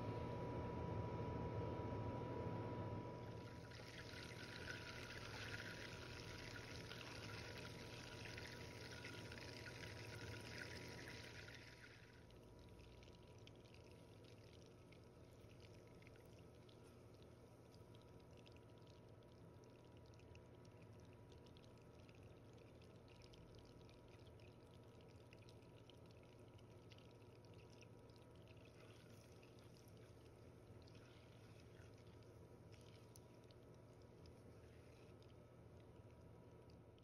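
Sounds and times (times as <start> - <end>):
butter boiling with crackling bubbles: 3.3 - 37.0.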